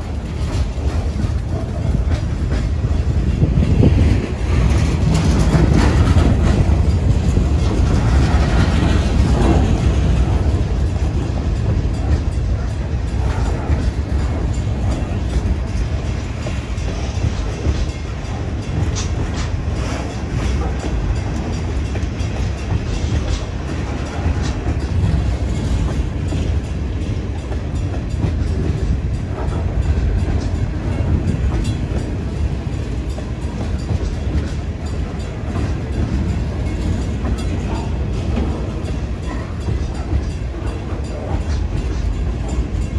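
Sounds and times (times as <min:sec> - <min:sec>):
freight train wheels rumbling: 0:00.0 - 0:42.9.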